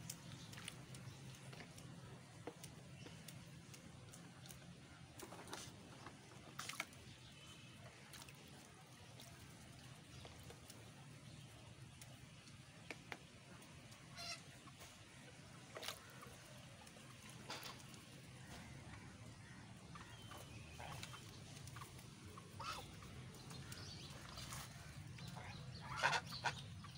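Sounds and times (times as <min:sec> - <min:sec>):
geese calling: 0:19.9 - 0:26.9.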